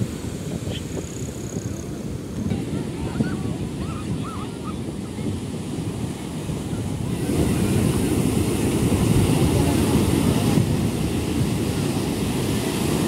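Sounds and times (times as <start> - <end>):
surf breaking on sand: 0.0 - 13.0
wind buffeting microphone: 0.0 - 13.0.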